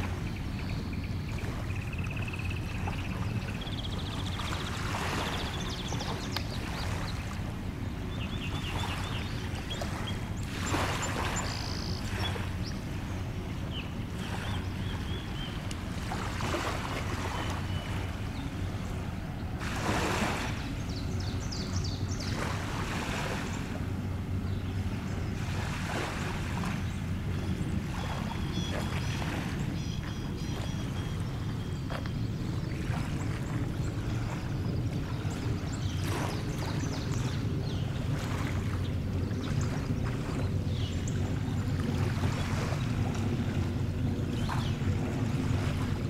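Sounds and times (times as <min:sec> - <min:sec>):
small waves washing ashore: 0:00.0 - 0:46.0
songbirds chirping: 0:00.0 - 0:46.0
steady low hum: 0:00.0 - 0:46.0.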